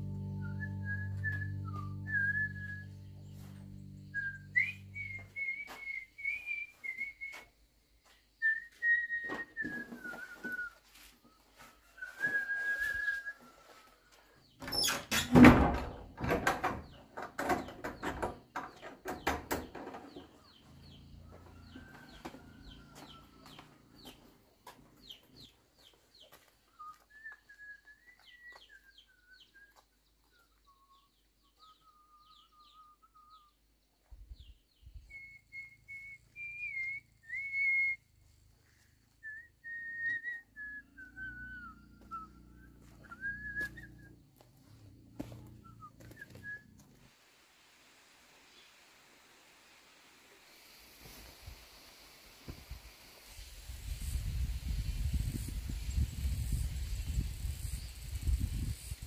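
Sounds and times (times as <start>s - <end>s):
person whistling a tune: 0.3s - 3.0s, 4.0s - 7.5s, 8.4s - 10.8s, 12.0s - 13.5s, 35.1s - 38.1s, 39.2s - 44.1s.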